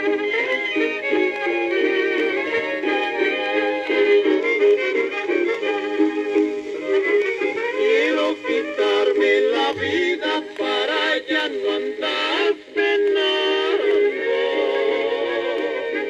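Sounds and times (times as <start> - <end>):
mariachi band: 0.0 - 16.0
vocal duet singing with vibrato: 5.6 - 16.0.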